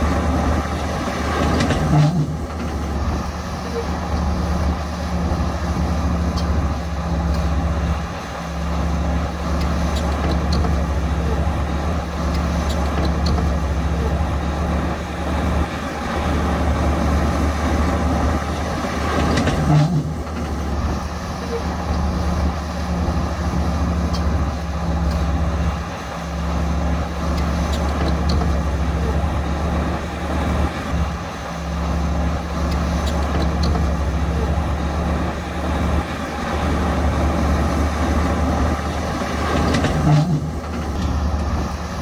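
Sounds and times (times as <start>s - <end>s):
heavy diesel machinery droning: 0.0s - 42.0s.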